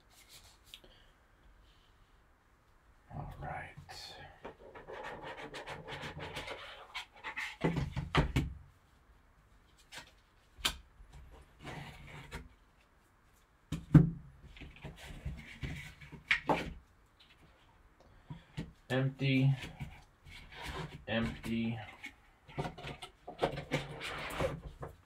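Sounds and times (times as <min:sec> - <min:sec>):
cardboard box rubbing and scraping: 0:23.5 - 0:24.7.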